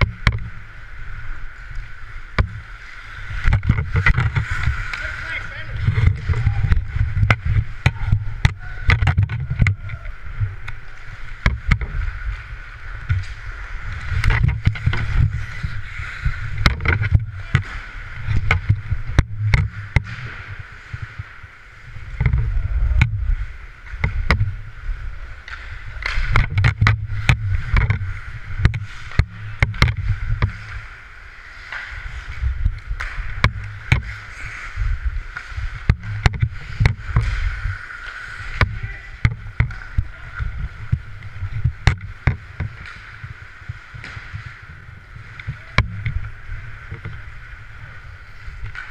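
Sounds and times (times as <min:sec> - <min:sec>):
hockey sticks and puck clacking: 0:00.0 - 0:24.6, 0:25.2 - 0:48.9
skates scraping on ice: 0:00.0 - 0:48.9
wind buffeting microphone: 0:02.4 - 0:21.3, 0:22.0 - 0:30.7.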